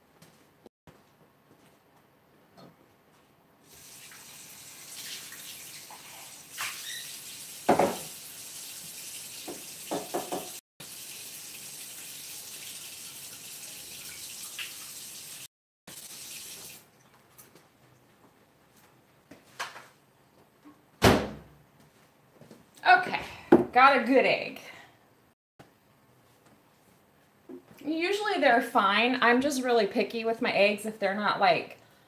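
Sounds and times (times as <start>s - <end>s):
tap running into sink: 7.7s - 8.2s, 9.4s - 10.6s.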